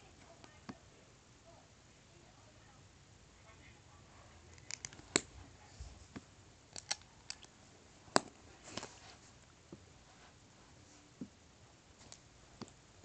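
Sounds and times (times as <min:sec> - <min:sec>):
plastic bricks clicking together: 0:06.7 - 0:07.5.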